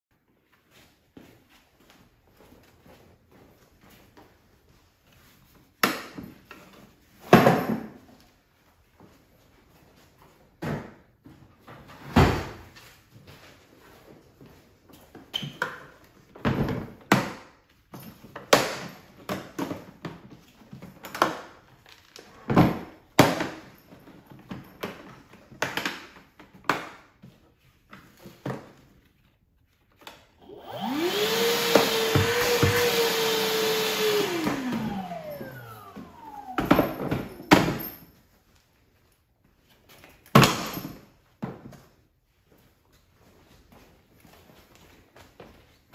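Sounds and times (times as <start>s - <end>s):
vacuum motor whining: 30.4s - 37.4s.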